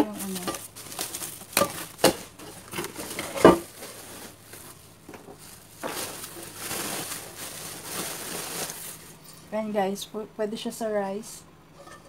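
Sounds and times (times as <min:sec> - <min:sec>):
metal pots and lids clanking: 0:00.0 - 0:00.8, 0:01.5 - 0:03.9, 0:11.8 - 0:12.0
bubble wrap crinkling: 0:00.0 - 0:09.6.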